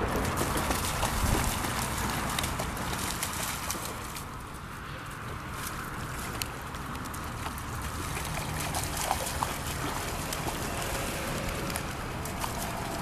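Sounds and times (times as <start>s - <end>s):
wind rumble on microphone: 0.0s - 4.5s
water splashing and trickling: 0.0s - 13.0s.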